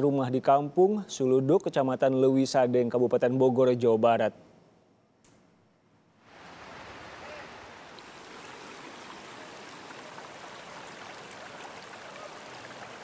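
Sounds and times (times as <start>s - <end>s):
floodwater flowing: 6.2s - 13.0s.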